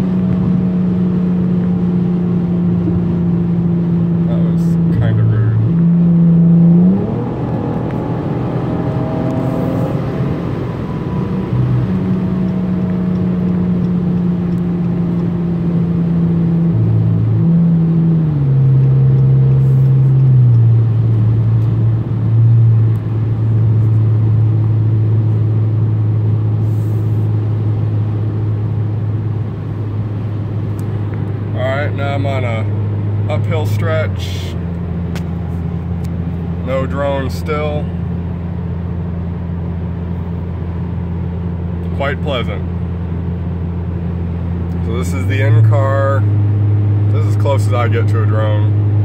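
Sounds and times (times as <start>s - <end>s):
car exhaust hum: 0.0s - 49.0s
road noise: 0.0s - 49.0s.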